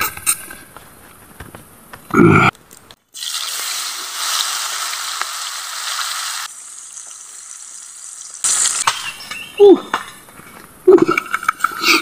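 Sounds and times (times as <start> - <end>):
fruit sizzling in a wok: 3.2 - 8.8.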